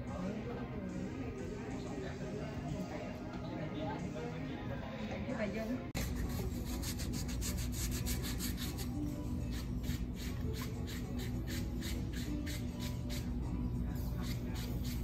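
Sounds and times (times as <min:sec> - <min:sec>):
scrub pad rasping on skin: 0:09.5 - 0:13.3.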